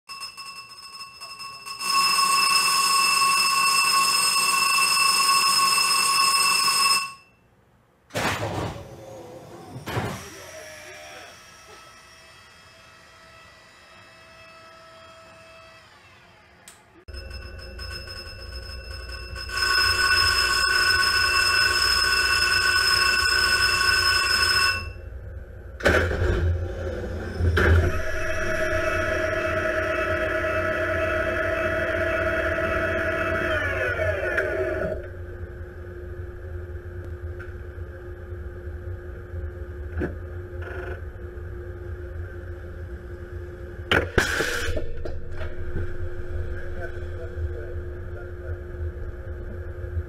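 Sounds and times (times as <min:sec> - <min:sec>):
warning alarm ringing: 0:00.1 - 0:07.5, 0:17.1 - 0:26.0, 0:27.2 - 0:36.0.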